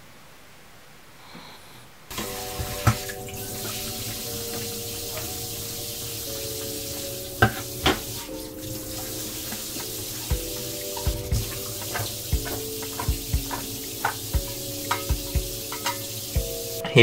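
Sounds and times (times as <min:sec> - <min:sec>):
faucet spraying into steel sink: 0:02.1 - 0:16.5
soft background music: 0:02.1 - 0:17.0
dishware clinking: 0:07.4 - 0:16.3.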